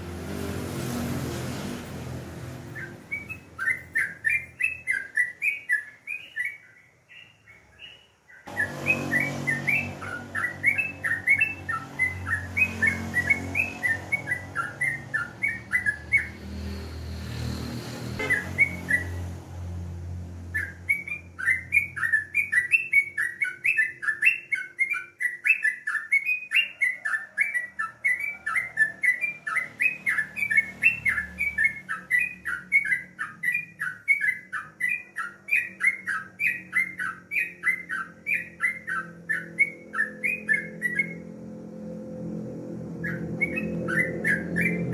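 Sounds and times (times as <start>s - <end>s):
low rumble: 41.1s - 44.9s.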